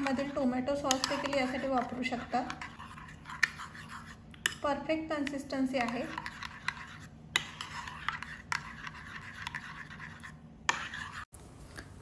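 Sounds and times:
spoon scraping a ceramic bowl: 0.0 - 4.6, 5.2 - 11.3.

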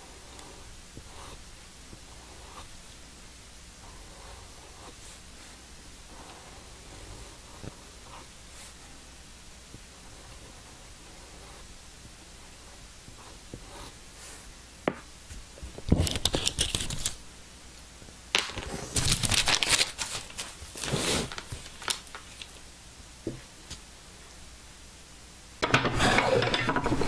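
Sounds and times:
paper rustling and crinkling: 15.6 - 17.2, 18.4 - 22.6.

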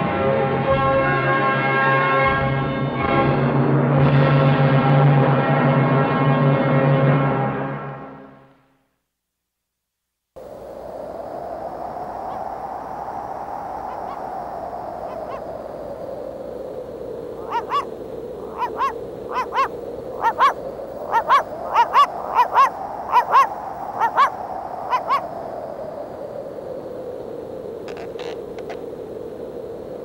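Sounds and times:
whooshing wind: 10.4 - 30.0
honk-like double calls: 17.4 - 17.9, 18.5 - 24.3.

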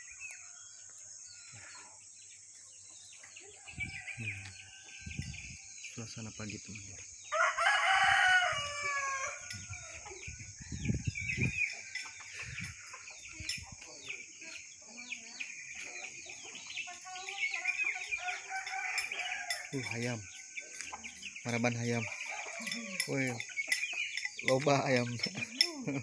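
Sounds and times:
insects droning: 0.0 - 26.0
small birds chirping: 0.0 - 26.0
rooster crowing: 3.4 - 5.7, 7.3 - 10.9, 17.7 - 20.4, 21.9 - 23.5
chickens clucking: 9.4 - 26.0.

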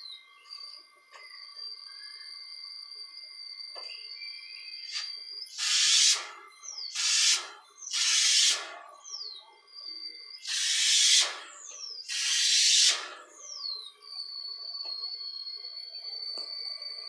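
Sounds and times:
falling whistle: 1.3 - 8.8, 9.7 - 17.0
spray gun hissing bursts: 5.5 - 8.8, 10.4 - 13.2.

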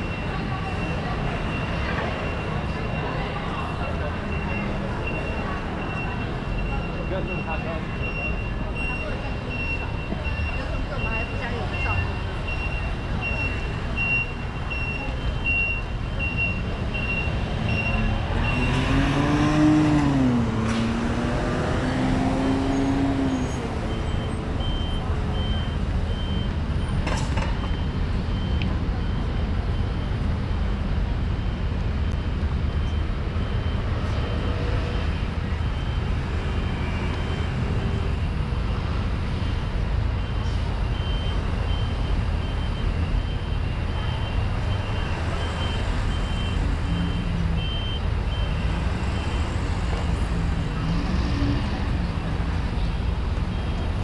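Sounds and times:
traffic rumble: 0.0 - 54.0
high electronic beep: 40.2 - 49.6.

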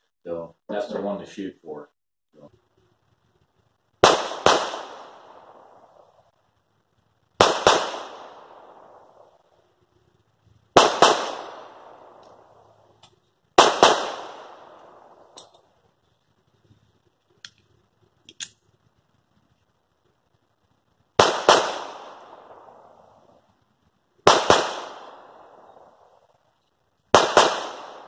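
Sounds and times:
pistol shots echoing: 4.0 - 6.2, 7.4 - 9.4, 10.8 - 12.8, 13.6 - 15.5, 21.2 - 23.4, 24.2 - 26.3, 27.1 - 28.0.

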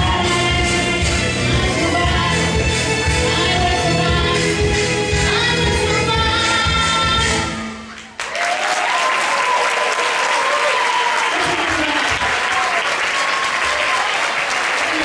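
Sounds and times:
music: 0.0 - 8.2
audience applause: 7.9 - 15.0.

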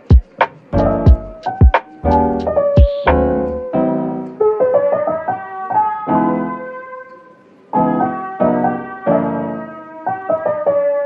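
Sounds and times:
gentle piano melody: 0.0 - 11.0.

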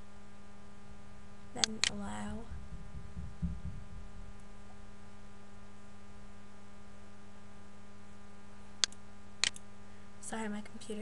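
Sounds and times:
electrical hum: 0.0 - 11.0
sharp click: 8.8 - 9.6.

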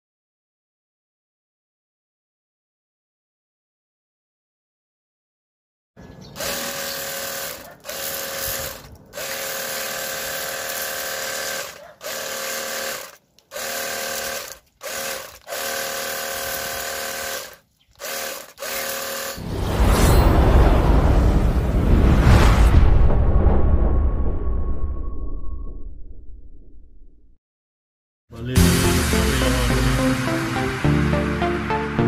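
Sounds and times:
pump motor whining: 6.4 - 19.4
low rumbling sound effect: 19.4 - 27.4
water spraying: 28.5 - 32.0.

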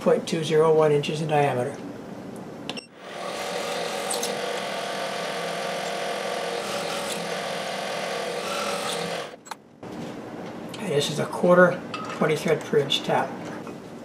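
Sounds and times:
milling machine drilling whine: 3.0 - 9.4.

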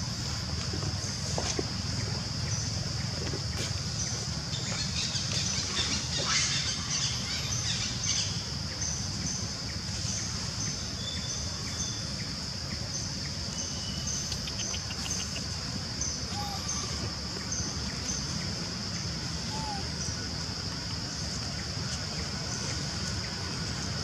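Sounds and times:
forest insects droning: 0.0 - 24.0
fast pulsing chirp: 13.6 - 16.8.

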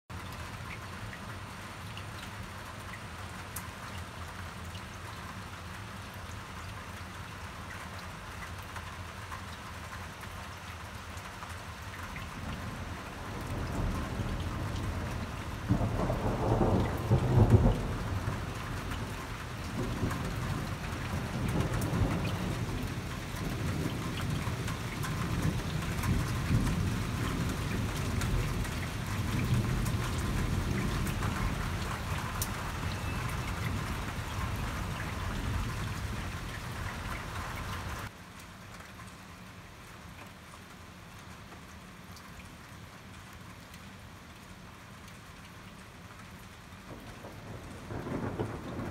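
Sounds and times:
rain hiss: 0.1 - 48.9
thunder rumbling: 12.4 - 37.4, 46.9 - 48.9.

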